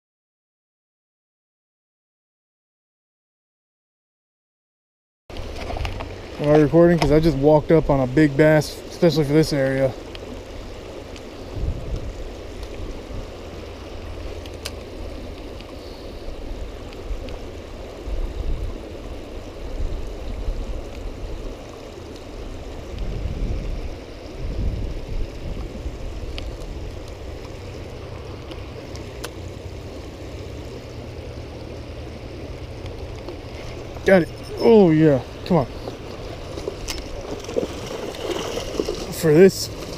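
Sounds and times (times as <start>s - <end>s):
river water running over rocks: 5.3s - 39.9s
wind rumbling on microphone: 5.3s - 39.9s.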